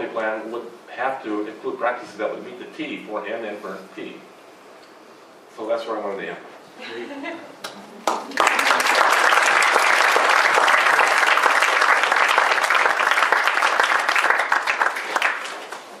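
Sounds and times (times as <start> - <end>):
audience applauding: 8.0 - 16.0.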